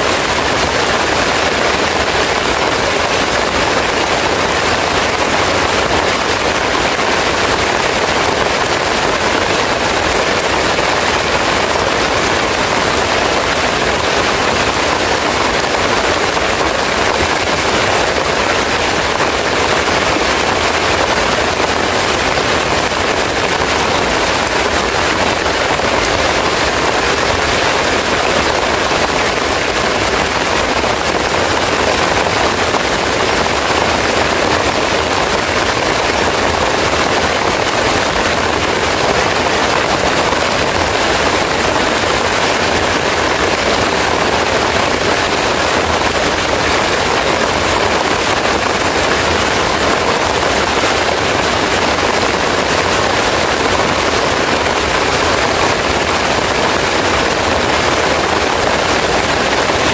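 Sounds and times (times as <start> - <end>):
heavy rain on leaves: 0.0 - 59.9.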